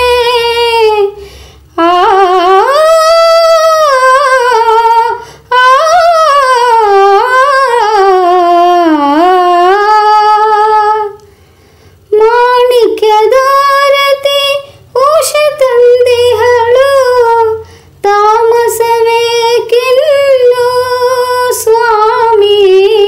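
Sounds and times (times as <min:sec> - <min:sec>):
breath: 0:01.2 - 0:01.7, 0:05.2 - 0:05.5, 0:11.2 - 0:12.1, 0:14.6 - 0:14.9, 0:17.6 - 0:18.0.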